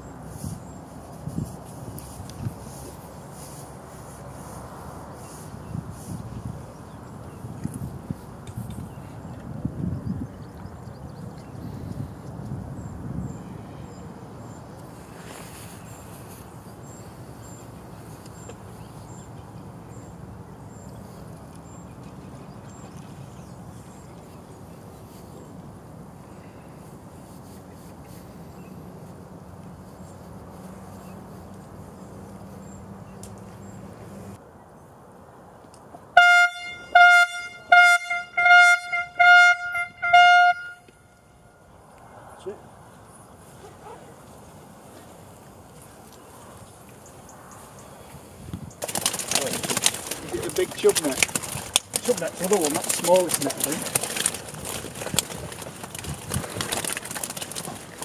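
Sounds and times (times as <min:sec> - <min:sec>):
air horn blasts: 0:36.2 - 0:41.6.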